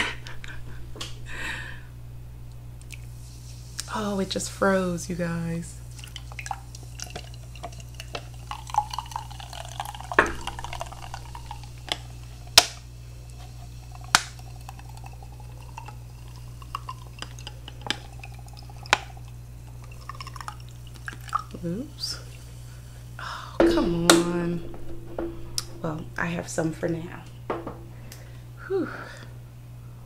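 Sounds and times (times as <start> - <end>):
liquid pouring into a glass: 5.9 - 21.6.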